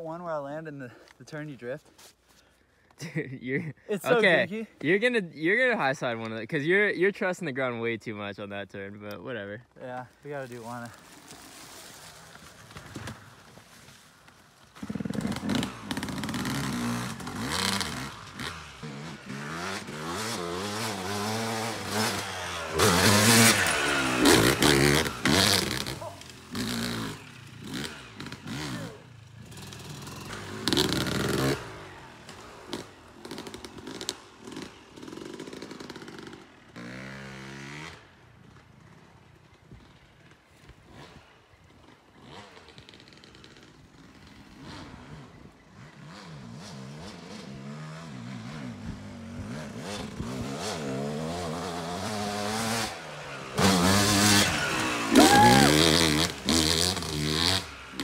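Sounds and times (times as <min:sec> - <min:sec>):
dirt bike engine revving: 0:14.8 - 0:39.2, 0:42.1 - 0:58.0.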